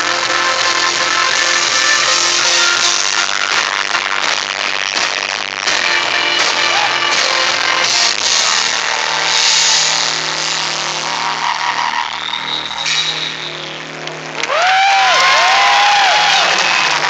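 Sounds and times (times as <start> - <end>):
loud live music: 0.0 - 17.0.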